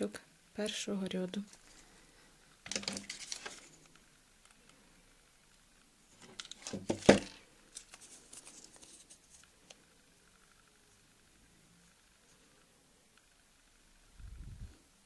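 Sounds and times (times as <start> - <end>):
handling clicks and rustles: 2.6 - 4.6, 6.1 - 9.9.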